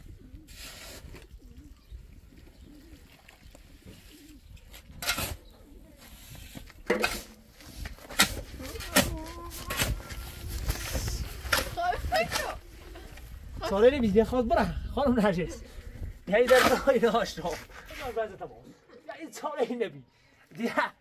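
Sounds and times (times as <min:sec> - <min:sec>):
dove cooing: 0:00.0 - 0:04.6
shovel scraping sand: 0:00.4 - 0:01.3, 0:04.2 - 0:12.6, 0:16.4 - 0:18.2.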